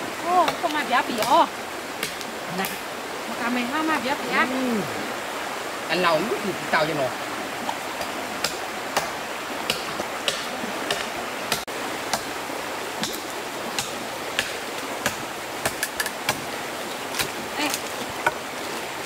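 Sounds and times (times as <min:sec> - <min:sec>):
stream water rushing: 0:00.0 - 0:19.0.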